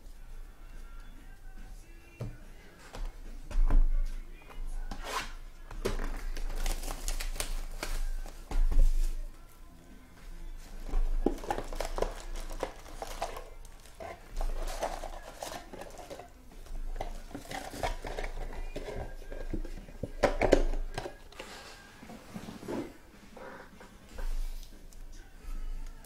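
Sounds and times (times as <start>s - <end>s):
card packs clattering: 5.8s - 8.5s, 11.0s - 21.6s
plastic wrap crinkling: 5.9s - 9.2s, 11.0s - 21.2s.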